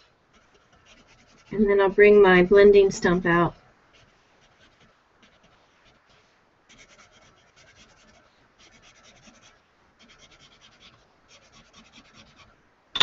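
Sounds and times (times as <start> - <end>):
pencil scratching on paper: 0.3 - 2.0, 3.9 - 12.5.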